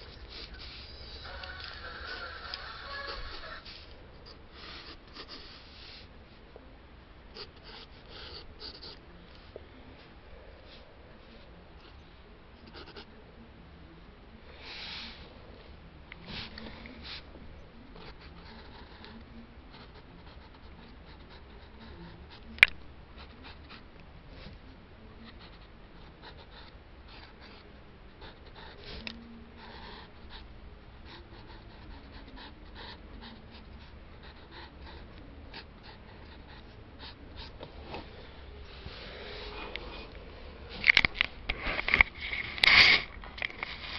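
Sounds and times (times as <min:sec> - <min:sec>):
pencil scratching on paper: 0:04.6 - 0:06.1.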